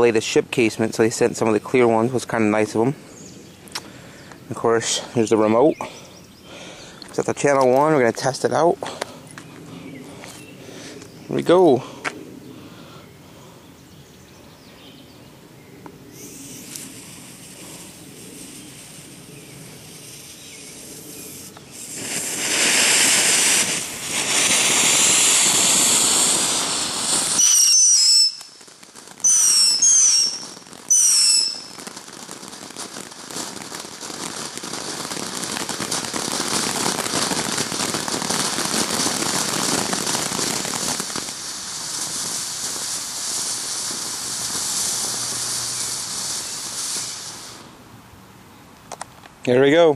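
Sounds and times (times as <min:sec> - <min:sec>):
firework fountain hissing: 0:16.0 - 0:48.0
whistles falling in pitch: 0:27.4 - 0:28.6, 0:29.2 - 0:31.7.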